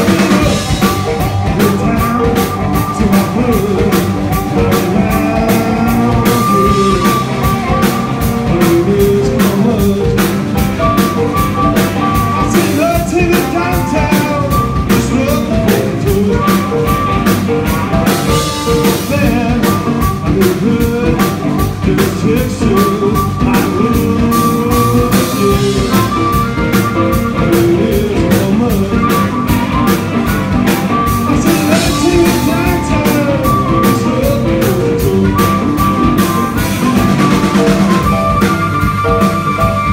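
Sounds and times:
drum kit beat: 0:00.0 - 0:39.9
electric guitar: 0:00.0 - 0:39.9
harmonica wailing: 0:22.9 - 0:39.9.

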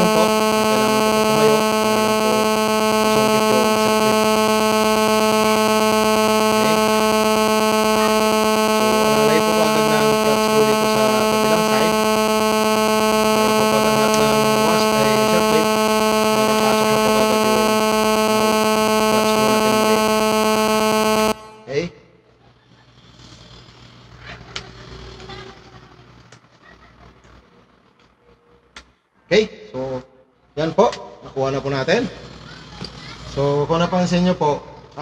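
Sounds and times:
loud electrical buzz: 0:00.0 - 0:21.8.

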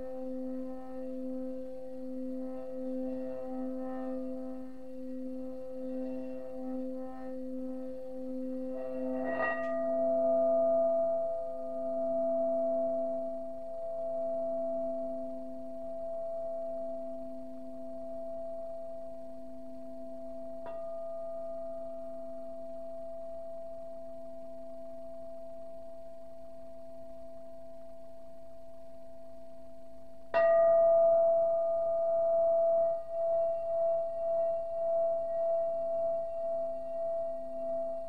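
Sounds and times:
singing bowl ringing: 0:00.0 - 0:28.0, 0:30.3 - 0:38.0.

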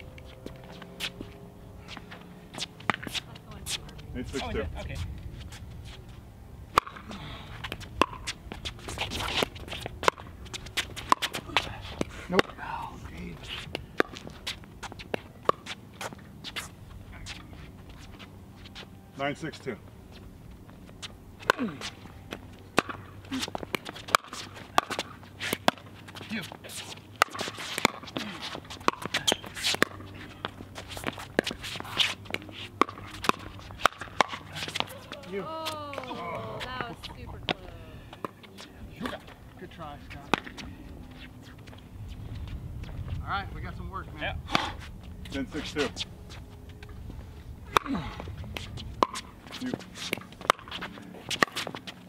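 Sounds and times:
sneakers squeaking on court: 0:07.5 - 0:12.1, 0:20.0 - 0:37.6.

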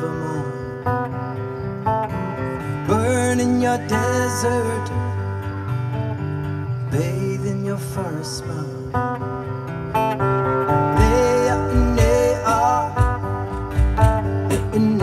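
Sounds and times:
strummed acoustic guitar: 0:00.0 - 0:15.0
electric bass: 0:10.8 - 0:15.0.

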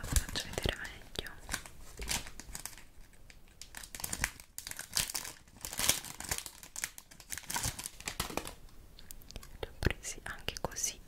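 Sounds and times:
plastic packaging crumpling: 0:00.0 - 0:08.6.

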